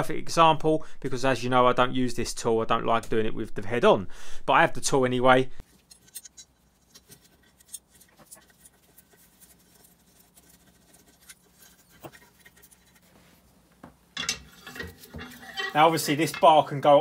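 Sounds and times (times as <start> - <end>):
small metal parts clicking and scraping: 5.6 - 13.1, 14.2 - 17.0.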